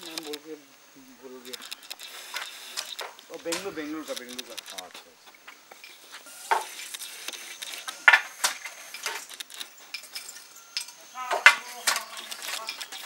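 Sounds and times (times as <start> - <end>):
handloom wooden knocks and clicks: 11.3 - 13.0.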